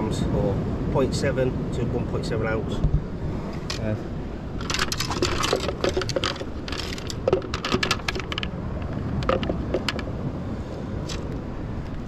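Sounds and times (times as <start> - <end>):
wind: 0.0 - 12.0
fishing gear clicking and tapping: 4.6 - 10.1.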